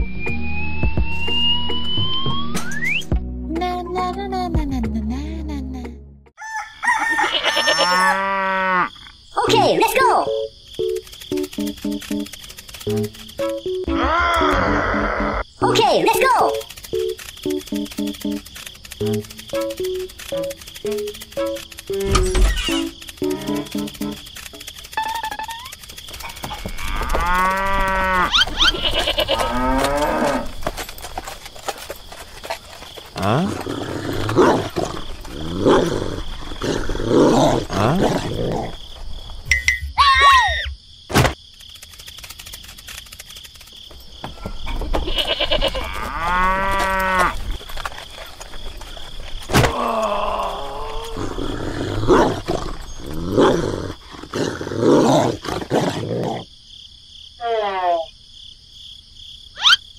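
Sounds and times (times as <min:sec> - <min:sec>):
drawn-out animal calls: 0:07.0 - 0:36.6, 0:44.3 - 0:54.1
cow mooing: 0:07.3 - 0:08.9, 0:26.6 - 0:30.5, 0:45.2 - 0:47.4
sharp clicks: 0:10.6 - 0:13.9, 0:16.2 - 0:30.2, 0:41.2 - 0:43.9.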